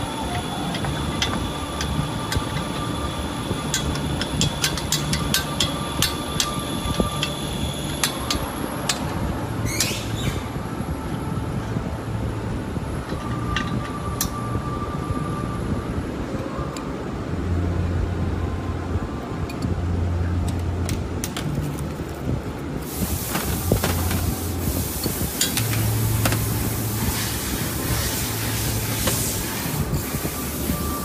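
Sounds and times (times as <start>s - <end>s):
low machine hum: 0.0s - 31.0s
loud steady hiss: 22.7s - 31.0s.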